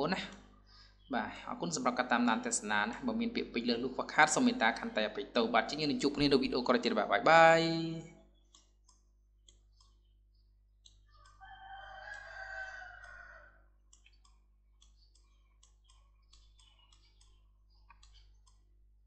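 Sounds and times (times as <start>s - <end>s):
computer mouse clicks: 8.4s - 10.0s, 10.8s - 13.3s, 13.9s - 18.7s.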